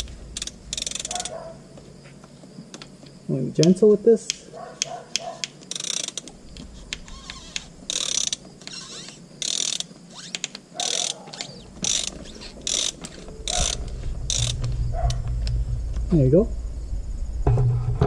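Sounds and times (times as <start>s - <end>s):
ratchet wrench clicking: 0.0s - 1.4s, 3.6s - 14.6s.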